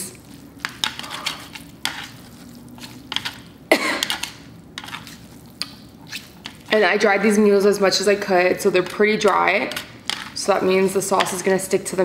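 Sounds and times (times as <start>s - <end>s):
chopsticks mixing saucy noodles: 0.0s - 12.0s
person coughing: 3.7s - 4.2s.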